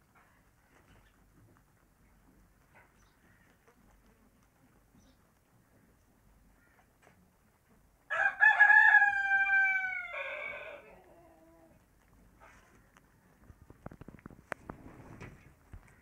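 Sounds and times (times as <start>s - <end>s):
rooster crowing: 8.1s - 11.0s.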